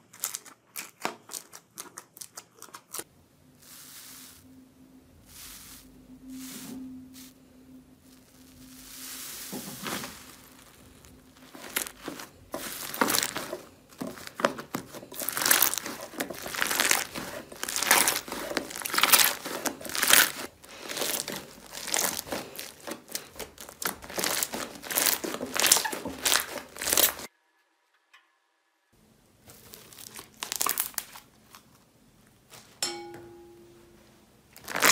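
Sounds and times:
slime crackling and popping: 0:09.8 - 0:27.3, 0:29.5 - 0:31.6, 0:34.6 - 0:34.9.

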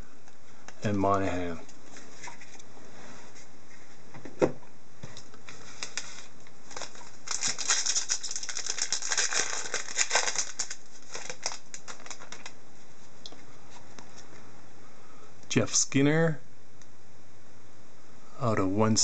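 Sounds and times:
foil wrapper tearing and crinkling: 0:05.7 - 0:12.6.

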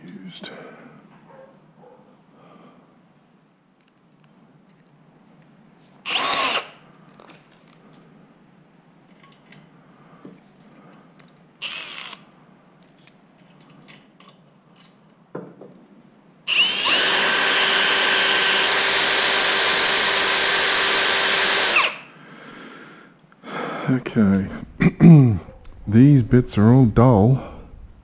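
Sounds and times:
cordless drill boring into metal: 0:06.1 - 0:06.8, 0:11.6 - 0:12.2, 0:16.5 - 0:22.0.

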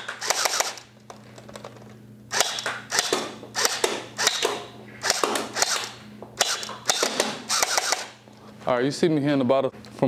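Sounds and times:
gel blaster pistol firing bursts: 0:02.3 - 0:08.2.

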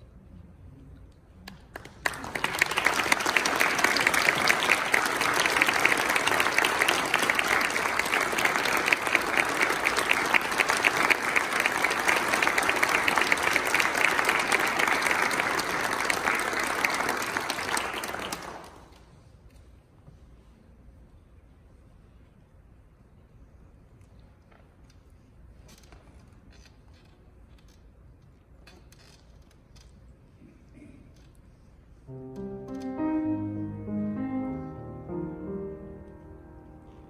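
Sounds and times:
audience applauding: 0:01.7 - 0:19.0.

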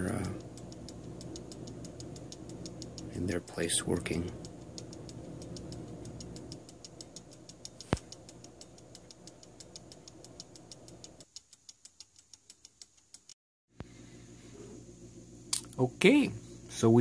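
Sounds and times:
watch ticking: 0:00.0 - 0:13.4
low background hum: 0:00.0 - 0:17.0
sharp click: 0:04.3 - 0:13.4, 0:15.5 - 0:15.8.

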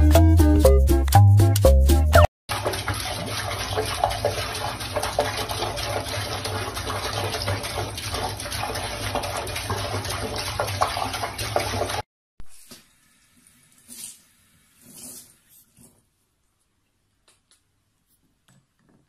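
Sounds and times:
water splashing: 0:02.5 - 0:12.0
tap water running into sink: 0:02.5 - 0:12.1.

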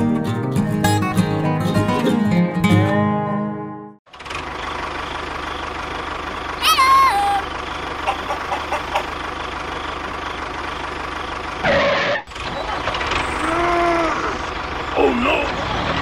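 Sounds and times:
tractor engine running: 0:04.1 - 0:16.0.

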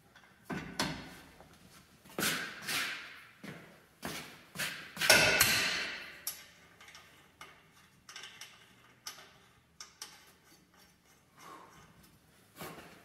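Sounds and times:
light metallic ticks of tools: 0:06.2 - 0:12.1.

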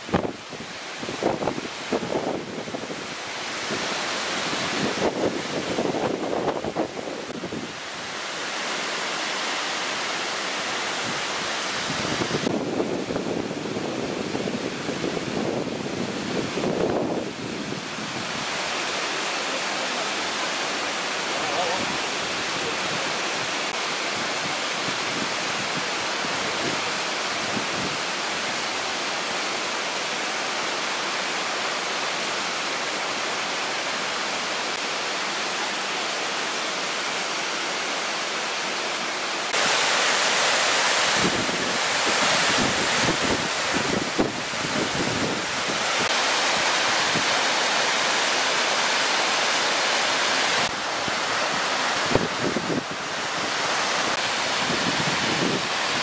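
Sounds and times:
waterfall rushing: 0:00.0 - 0:56.0
wind buffeting microphone: 0:11.8 - 0:18.6, 0:41.0 - 0:46.2, 0:50.6 - 0:56.0.

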